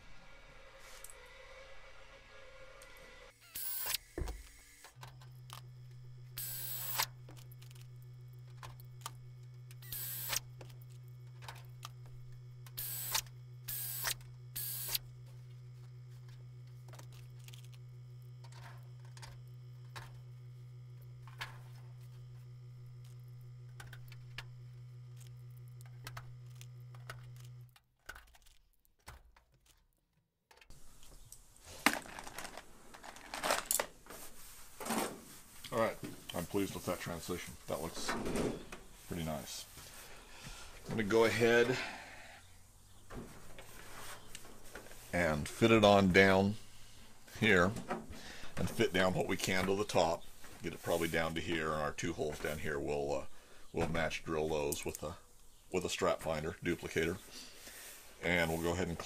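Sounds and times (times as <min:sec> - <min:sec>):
steady low hum: 0:00.0 - 0:27.8, 0:30.7 - 0:59.0
pneumatic air drill hissing: 0:02.9 - 0:05.0, 0:06.4 - 0:07.2, 0:09.8 - 0:10.5, 0:12.8 - 0:15.0.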